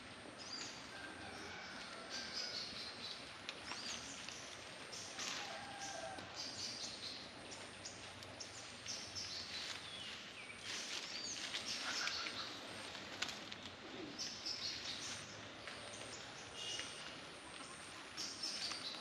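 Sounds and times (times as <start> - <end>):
background hiss: 1.6 - 19.0
birds chirping: 6.4 - 13.0, 13.6 - 19.0.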